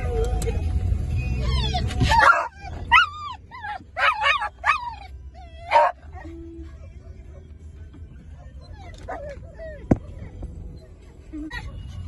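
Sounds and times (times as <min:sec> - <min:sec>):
car road noise: 0:00.0 - 0:12.0
dog yelping barks: 0:01.5 - 0:06.3.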